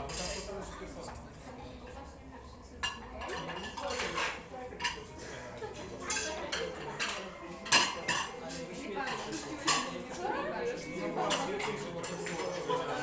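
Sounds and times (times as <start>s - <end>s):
murmur of voices: 0.0s - 13.0s
plates and cutlery clinking: 2.8s - 5.2s, 5.8s - 10.2s, 10.9s - 13.0s.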